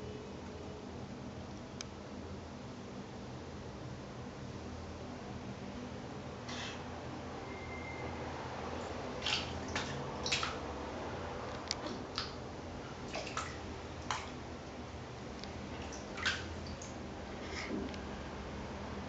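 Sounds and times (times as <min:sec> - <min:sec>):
cat paws splashing in water: 0:09.1 - 0:10.9, 0:11.5 - 0:14.5, 0:15.4 - 0:17.8.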